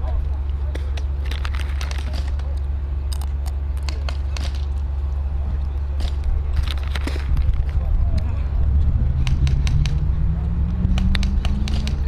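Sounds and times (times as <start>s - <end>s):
steady low hum: 0.0s - 12.0s
airsoft guns firing: 10.8s - 12.0s.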